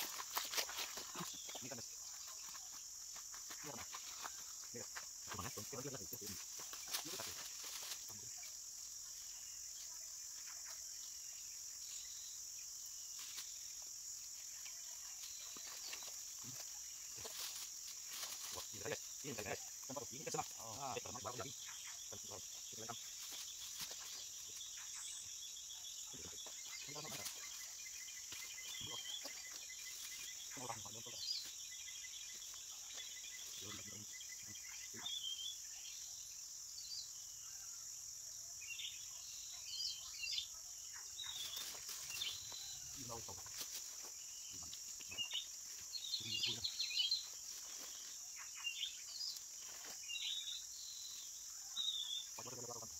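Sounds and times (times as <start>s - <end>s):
high-pitched insect chorus: 0.0s - 52.9s
bird chirps: 18.6s - 37.9s, 38.5s - 43.3s, 44.0s - 52.9s.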